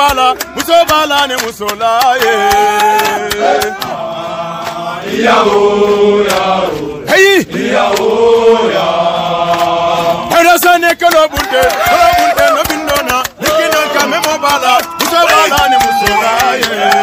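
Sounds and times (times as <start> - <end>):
men chanting a song: 0.0 - 17.0.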